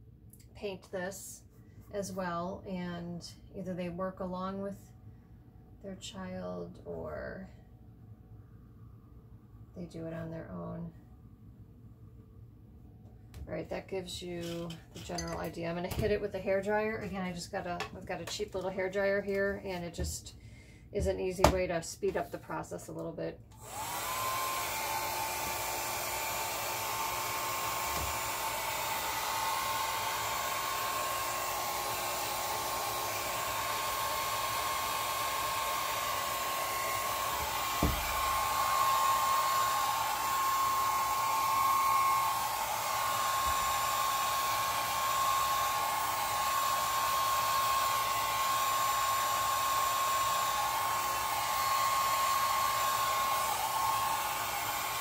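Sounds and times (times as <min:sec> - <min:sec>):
hair dryer running: 0:23.5 - 0:55.0.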